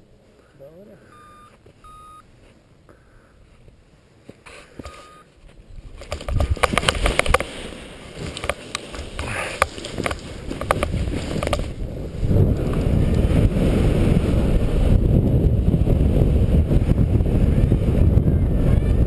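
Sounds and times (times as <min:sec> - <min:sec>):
wind rushing on microphone: 0:05.6 - 0:19.0.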